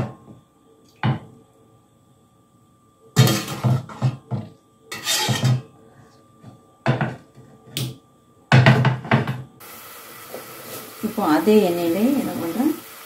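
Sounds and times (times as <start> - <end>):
metal spoon scraping a pot: 4.9 - 5.6.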